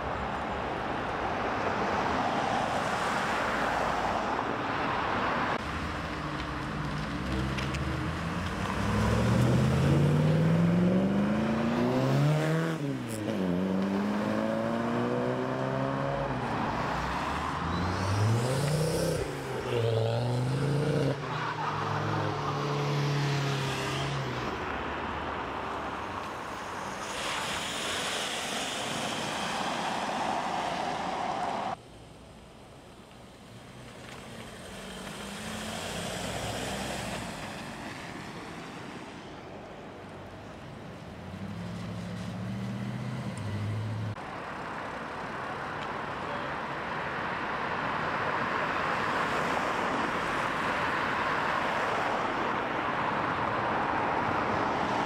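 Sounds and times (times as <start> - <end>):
cars accelerating: 5.6 - 24.7, 33.5 - 37.9, 41.1 - 44.2
tyres hissing on wet tarmac: 26.2 - 32.4.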